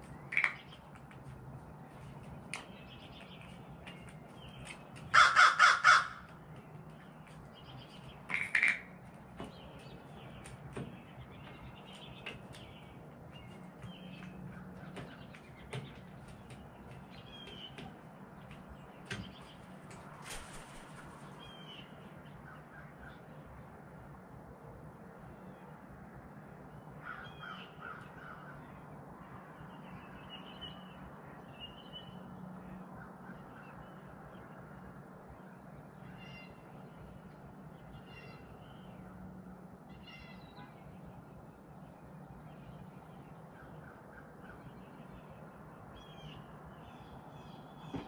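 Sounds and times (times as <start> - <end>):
crow cawing: 5.1 - 6.4, 8.3 - 8.9, 27.0 - 28.6.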